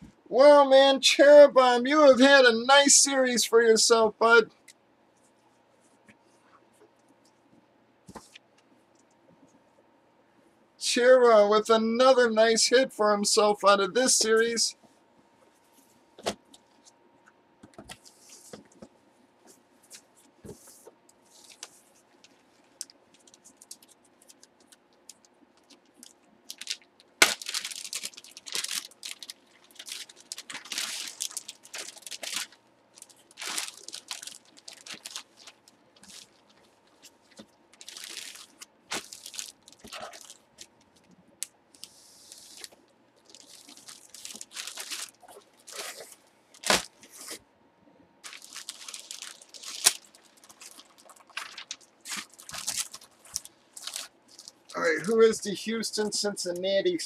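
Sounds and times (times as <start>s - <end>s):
faint steady hum: 0.0s - 57.0s
plastic bag crinkling: 21.3s - 41.1s, 41.8s - 47.1s, 48.2s - 54.8s.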